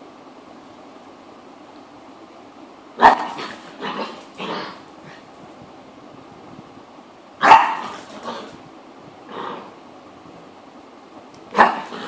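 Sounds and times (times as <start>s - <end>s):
small dog barking: 3.0s - 4.2s, 7.4s - 8.5s, 11.5s - 12.0s.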